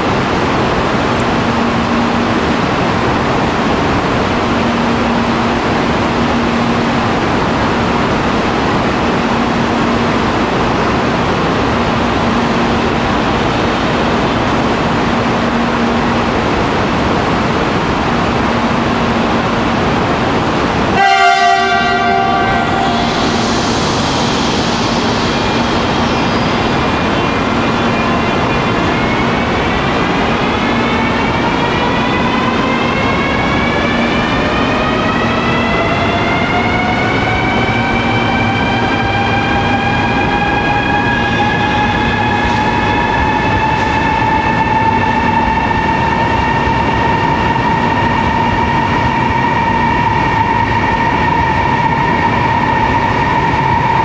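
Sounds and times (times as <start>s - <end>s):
train hissing and humming: 0.0s - 54.0s
train horn toot: 20.9s - 23.4s
electric traction whine rising: 22.6s - 29.8s.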